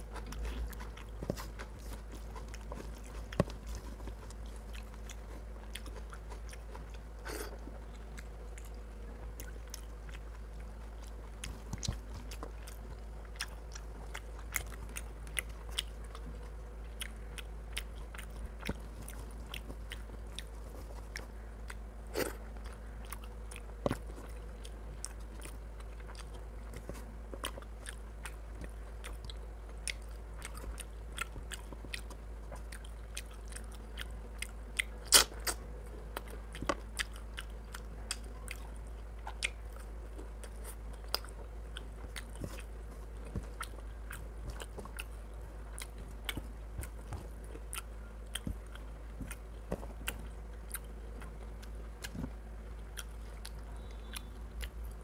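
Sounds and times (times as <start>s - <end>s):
man chewing and biting: 0.0s - 55.0s
mouth clicks and smacks: 34.8s - 35.6s.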